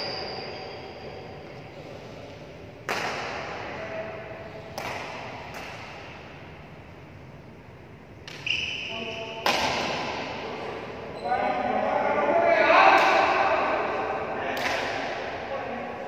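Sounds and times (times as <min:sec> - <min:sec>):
sneaker squeaks on court floor: 0:00.0 - 0:01.8, 0:08.3 - 0:09.7
racket hitting shuttlecock: 0:02.8 - 0:03.5, 0:04.7 - 0:06.3, 0:09.4 - 0:10.4.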